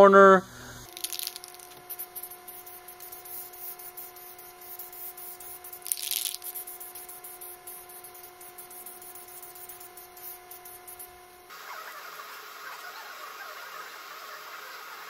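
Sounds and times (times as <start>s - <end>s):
spray paint can hissing: 0.8s - 11.2s.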